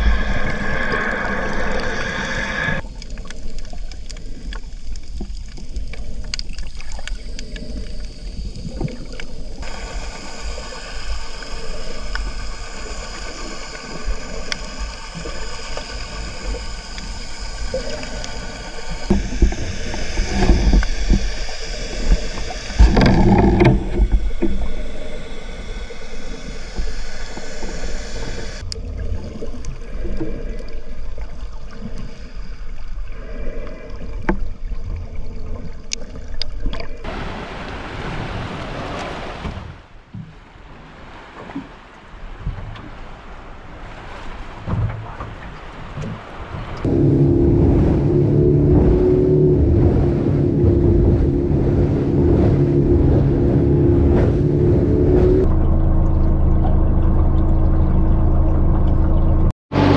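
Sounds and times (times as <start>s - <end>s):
boat motor running: 9.6s - 28.8s, 46.8s - 59.9s
wind buffeting microphone: 44.6s - 55.5s.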